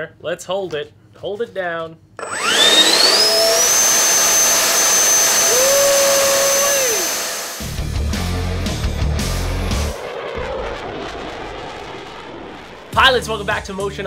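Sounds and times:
electric ducted fan whine: 2.2s - 7.8s
intro music with heavy beat: 7.6s - 10.0s.

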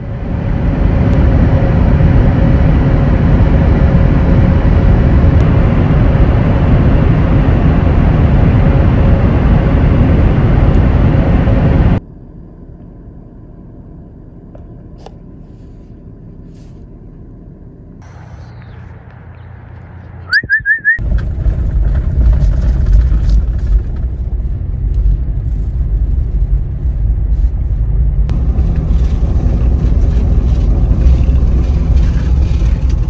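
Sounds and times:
road and wind noise: 0.0s - 33.0s.

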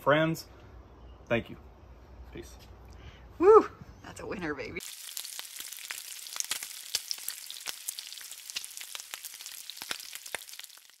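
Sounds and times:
bacon sizzling: 4.8s - 11.0s
fat crackling and popping: 4.8s - 11.0s.

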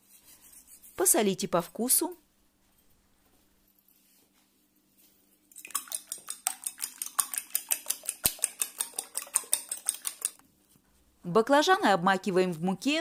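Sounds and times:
fork beating eggs in bowl: 0.0s - 1.2s, 5.5s - 10.5s.

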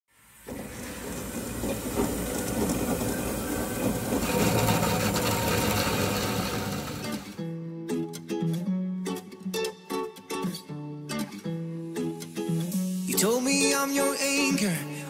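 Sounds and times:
band saw cutting steel tube: 0.5s - 7.4s.

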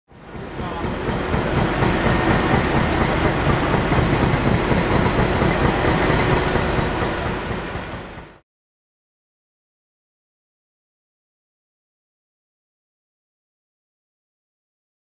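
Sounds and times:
heavy vehicles and machinery rumbling: 0.1s - 8.4s.

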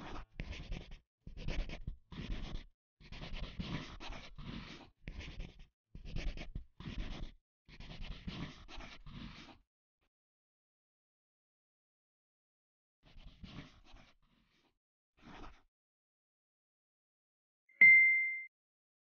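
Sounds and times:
pencil scratching on paper: 0.0s - 9.6s, 13.1s - 15.7s.

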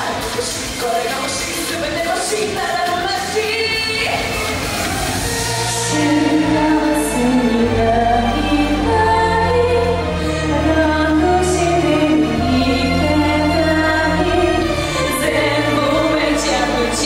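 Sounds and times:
band backing: 0.0s - 17.0s
women singing layered vocals: 0.0s - 17.0s.

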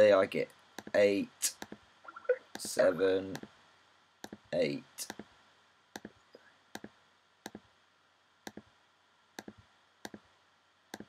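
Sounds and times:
mouse button clicks: 6.0s - 6.2s.

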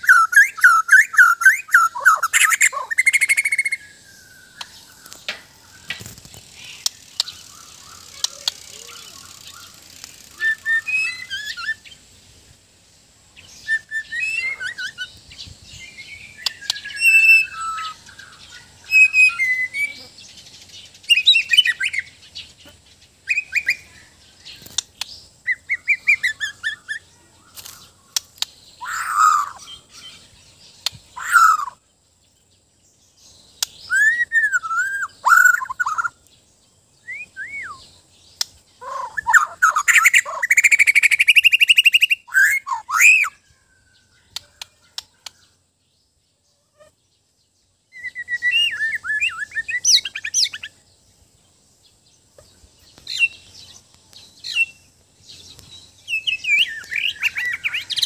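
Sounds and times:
bird singing whistled phrases: 0.0s - 4.8s, 6.8s - 12.0s, 13.4s - 15.1s, 15.8s - 20.1s, 31.2s - 31.8s, 33.6s - 36.2s, 37.0s - 37.9s, 38.8s - 45.3s, 47.9s - 50.7s, 56.1s - 58.0s
loud fast bird trill: 0.0s - 4.9s, 6.5s - 12.1s, 13.6s - 15.2s, 16.0s - 20.1s, 28.8s - 31.8s, 33.6s - 36.2s, 38.8s - 43.6s, 47.9s - 50.8s
sharp bird clicks: 4.5s - 10.7s, 16.4s - 17.3s, 24.5s - 25.3s, 27.5s - 29.6s, 30.8s - 31.7s, 33.5s - 34.1s, 38.3s - 43.3s, 44.3s - 45.5s.

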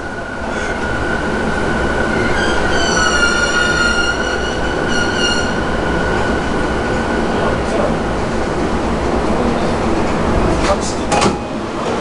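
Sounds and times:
train running rumble: 0.0s - 12.0s
high brake squeal: 2.2s - 6.3s.

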